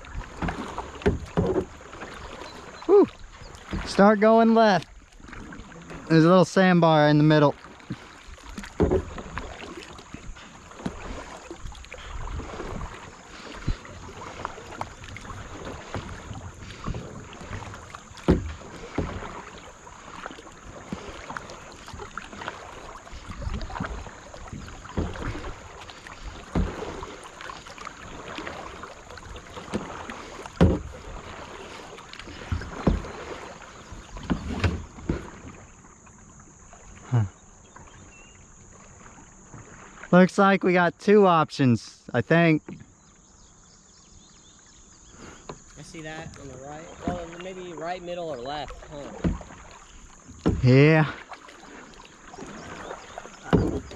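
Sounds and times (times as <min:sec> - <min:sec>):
paddle strokes splashing: 0:00.0 - 0:53.9.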